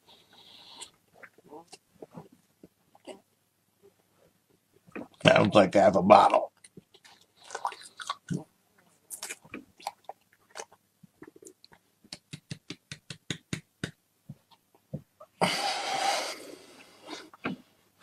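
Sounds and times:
man chewing with mouth clicks: 0:06.6 - 0:08.5, 0:09.1 - 0:12.4
rough burst of breath: 0:15.4 - 0:17.2.

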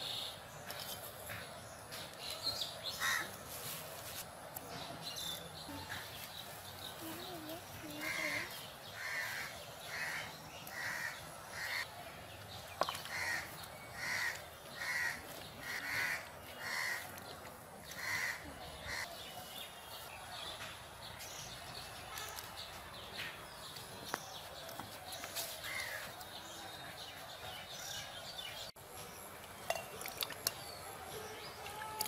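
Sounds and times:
crow cawing: 0:13.1 - 0:17.0.

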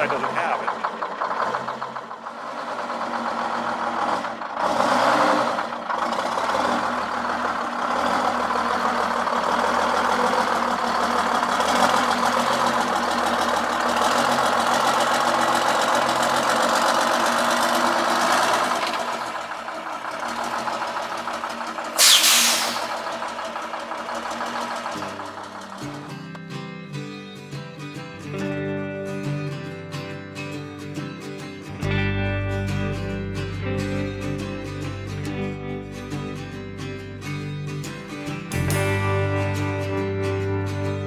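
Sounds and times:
diesel engine idling: 0:00.0 - 0:26.4
burst of hissing: 0:22.0 - 0:23.0.

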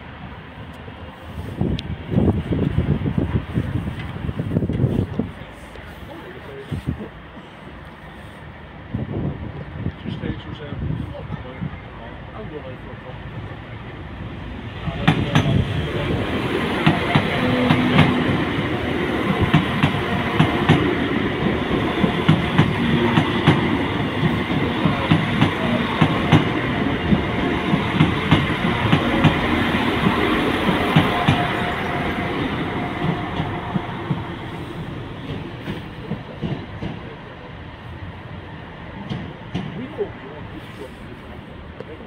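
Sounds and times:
train running noise: 0:00.0 - 0:42.0
train wheels clacking over rail joints: 0:14.9 - 0:32.0, 0:32.8 - 0:37.2, 0:39.0 - 0:40.1.

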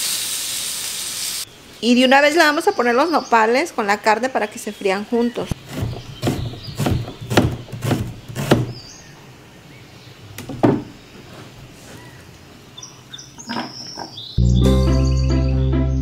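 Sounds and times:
knife knocking on cutting board: 0:05.7 - 0:08.8, 0:10.5 - 0:10.9
music: 0:14.4 - 0:16.0.

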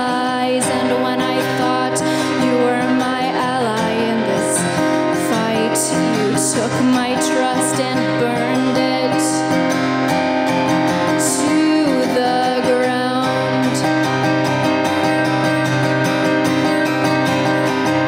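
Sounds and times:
woman singing: 0:00.0 - 0:09.7, 0:11.0 - 0:14.2
strummed acoustic guitar: 0:00.0 - 0:18.0.

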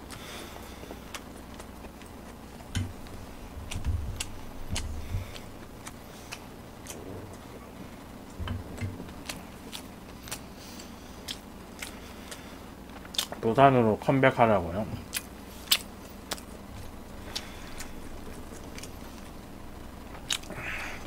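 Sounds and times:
chewing and mouth noises: 0:00.0 - 0:13.4, 0:15.0 - 0:21.0
low thumps: 0:02.7 - 0:05.6, 0:07.0 - 0:09.2.

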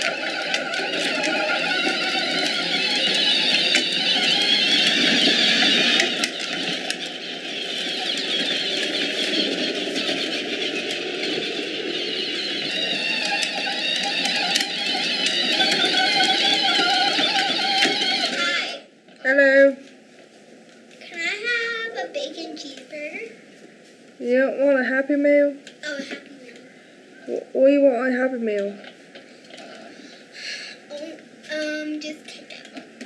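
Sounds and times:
electric motor whirring: 0:00.0 - 0:18.9
plastic wheels rolling on bricks: 0:00.0 - 0:18.9.

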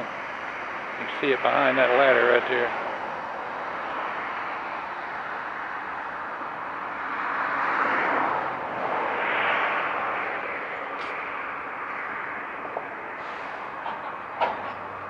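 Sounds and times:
air brakes hissing: 0:13.2 - 0:13.8.

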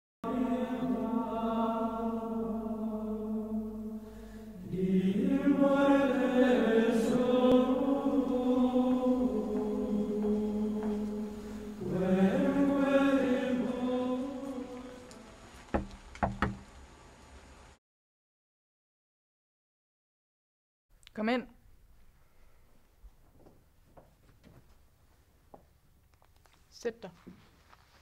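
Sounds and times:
choral chant: 0:00.2 - 0:15.5
knocks on a door: 0:15.7 - 0:16.6.

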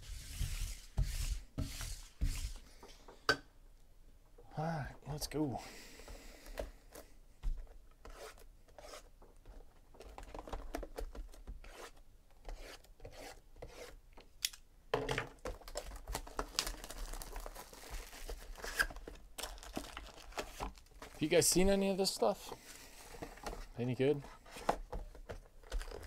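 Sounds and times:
shrink-wrap tearing and crinkling: 0:15.5 - 0:21.2.

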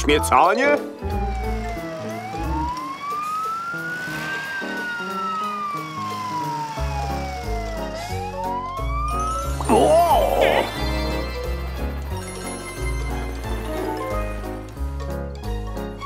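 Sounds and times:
background music with bass: 0:00.0 - 0:02.8, 0:06.8 - 0:16.0
cartoon police siren wailing: 0:00.8 - 0:11.3.

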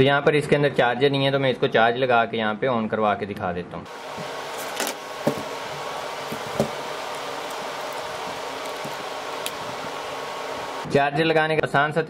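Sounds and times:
background hiss: 0:03.9 - 0:10.9
small objects knocking on desk: 0:04.8 - 0:05.6, 0:06.3 - 0:06.8.

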